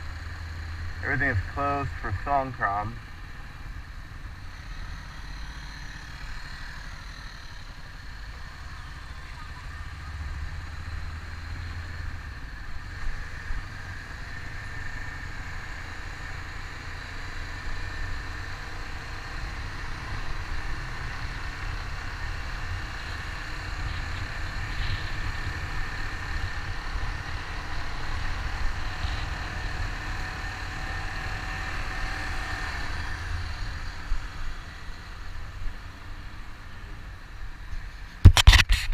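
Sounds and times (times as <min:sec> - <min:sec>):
motorcycle engine running: 0:00.0 - 0:38.9
wind noise on microphone: 0:38.2 - 0:38.9.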